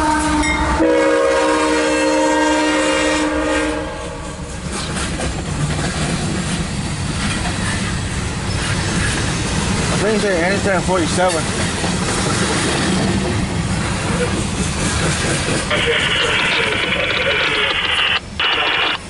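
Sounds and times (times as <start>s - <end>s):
train horn chord: 0.0s - 4.3s
train cars rumbling and clattering: 0.0s - 19.0s.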